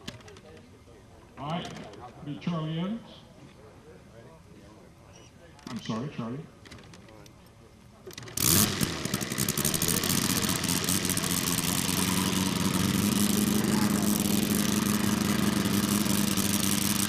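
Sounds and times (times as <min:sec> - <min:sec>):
model aero engine idling: 0:08.3 - 0:17.0.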